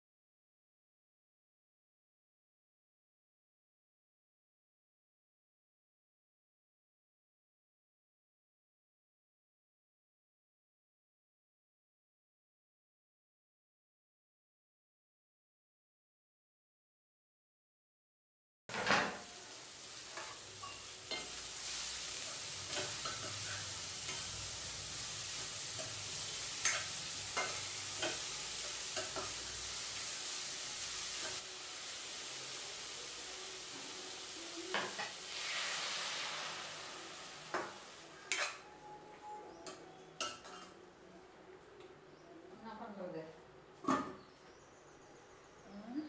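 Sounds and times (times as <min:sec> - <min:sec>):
beans sizzling in a pan: 0:18.7 - 0:38.7
metal spatula scraping a pan: 0:20.0 - 0:30.2, 0:34.7 - 0:38.7.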